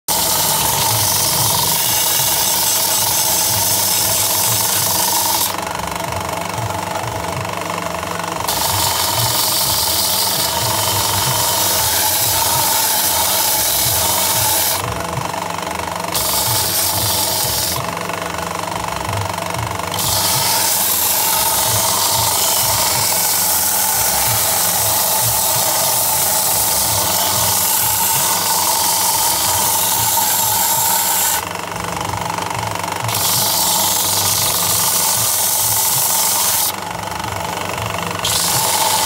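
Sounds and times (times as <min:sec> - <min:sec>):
sanding belt hissing on wood: 0:00.1 - 0:05.6, 0:08.5 - 0:14.9, 0:16.2 - 0:17.8, 0:19.9 - 0:31.5, 0:33.0 - 0:36.7, 0:38.2 - 0:39.0
belt sander motor hum: 0:00.1 - 0:39.0.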